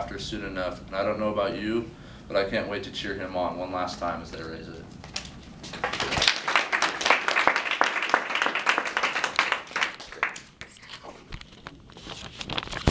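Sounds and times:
small audience applause: 0:05.6 - 0:10.7.

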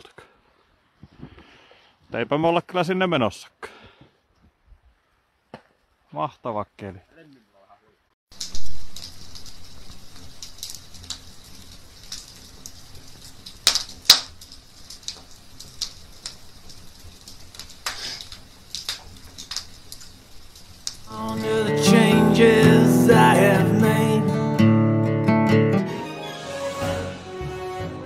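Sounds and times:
wood fire crackling and popping: 0:08.3 - 0:23.8
guitar music: 0:21.1 - 0:28.0.

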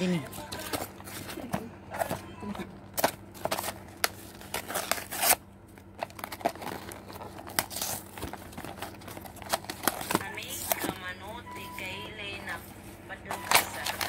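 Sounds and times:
paper and cardboard tearing: 0:03.0 - 0:05.4, 0:06.0 - 0:11.0.

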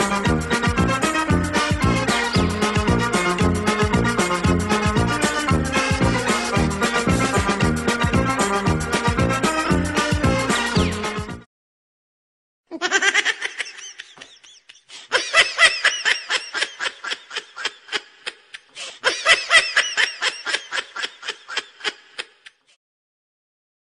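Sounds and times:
person laughing high-pitched: 0:12.7 - 0:22.8.

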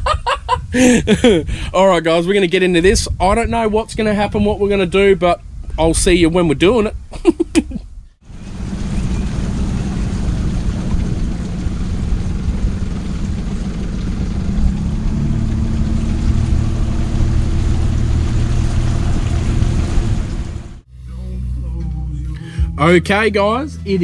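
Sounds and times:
outboard motor running: 0:08.2 - 0:20.8
wind and water rushing: 0:08.2 - 0:20.8.

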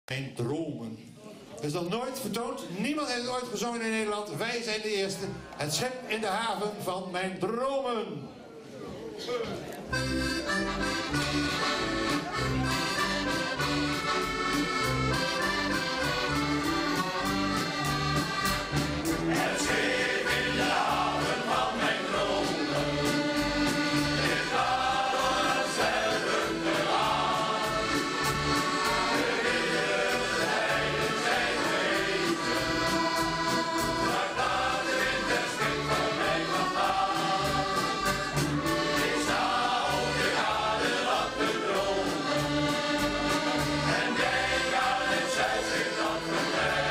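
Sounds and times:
accordions playing: 0:09.8 - 0:46.9
steady drum beat: 0:17.4 - 0:43.2
choir singing: 0:19.1 - 0:46.9.

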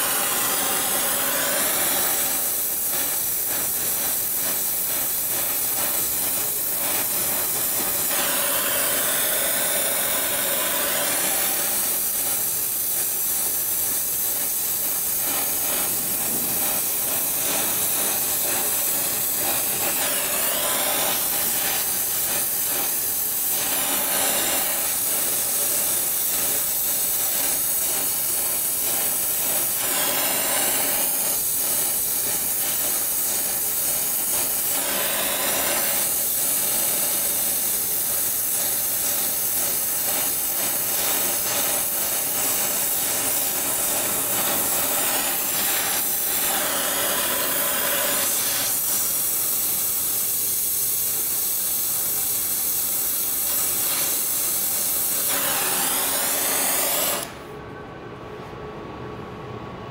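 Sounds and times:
welding torch flame hissing: 0:00.0 - 0:57.5.

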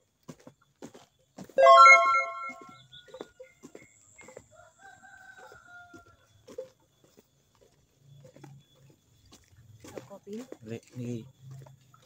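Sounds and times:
faint rooster crowing: 0:04.2 - 0:06.7.

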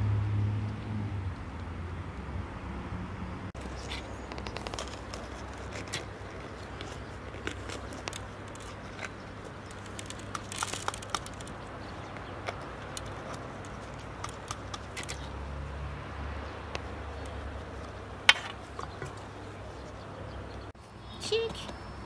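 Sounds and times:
pepper stems snapping: 0:03.6 - 0:15.4.

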